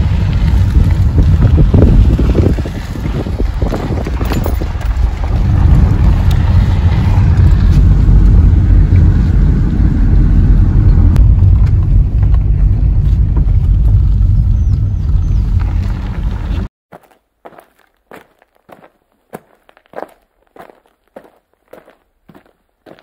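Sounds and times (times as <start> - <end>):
car engine and road rumble: 0.0 - 16.7.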